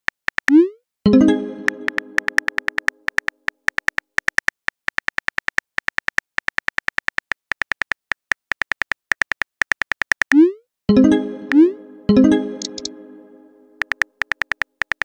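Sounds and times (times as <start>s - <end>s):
message chime: 1.1s - 2.5s, 10.9s - 13.8s
phone keyboard typing clicks: 1.3s - 10.4s, 12.6s - 12.9s, 13.8s - 15.0s.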